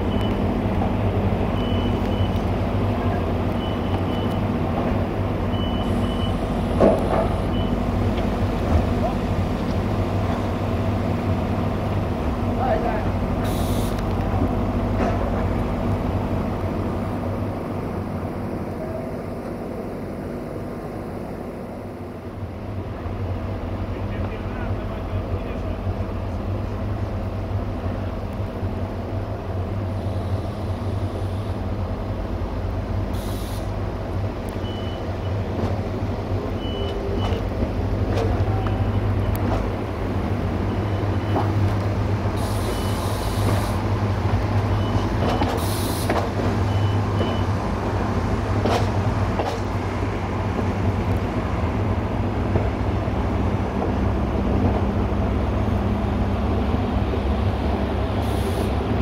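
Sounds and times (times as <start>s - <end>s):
wheel and track noise: 0.0s - 19.9s, 22.5s - 59.0s
railcar engine drone: 0.0s - 59.0s
brief hisses: 13.4s - 14.0s, 33.2s - 33.8s, 45.5s - 46.2s, 58.2s - 58.8s.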